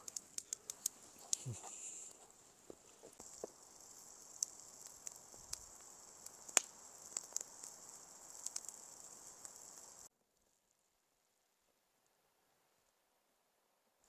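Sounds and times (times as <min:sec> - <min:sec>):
campfire crackling: 0:00.0 - 0:10.1.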